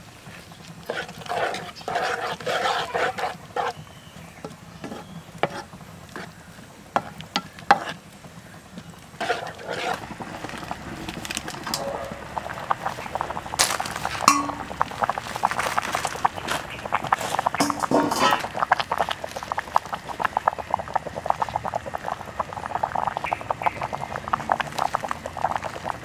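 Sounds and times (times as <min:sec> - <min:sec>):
spatula stirring wet mix: 0:00.1 - 0:26.0
spatula scraping metal skillet: 0:00.9 - 0:03.8, 0:04.8 - 0:06.3, 0:07.0 - 0:08.0, 0:09.1 - 0:10.7, 0:17.6 - 0:18.5.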